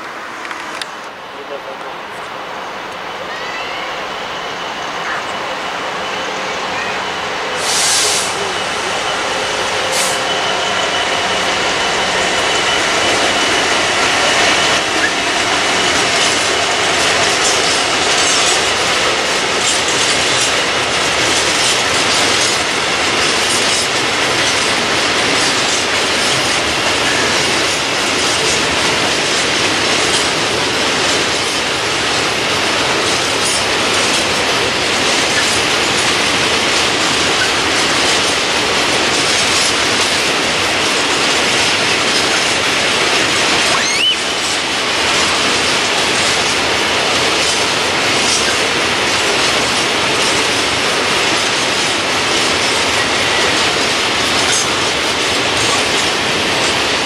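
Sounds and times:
freight train rumbling past: 0.0 - 57.0
faint high wheel squeal: 3.2 - 15.2, 43.7 - 44.3.

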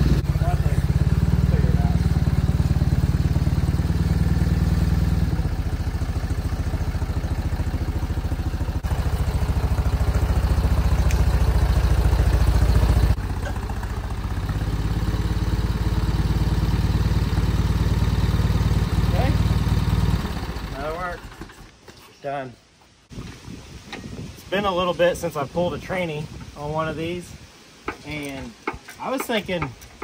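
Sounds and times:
forklift running: 0.0 - 21.7.

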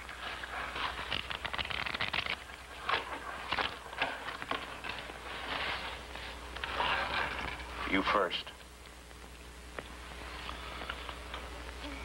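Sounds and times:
steady low hum: 0.0 - 12.0
playing cards shuffling: 0.2 - 6.0.

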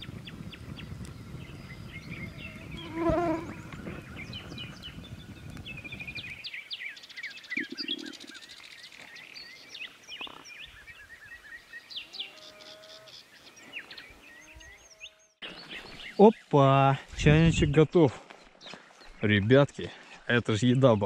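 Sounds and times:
small songbirds chirping: 0.0 - 21.0.

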